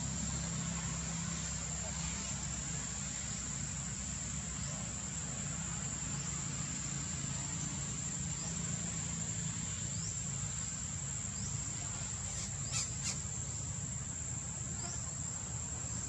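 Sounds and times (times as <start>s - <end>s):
insects shrilling: 11.2s - 15.4s.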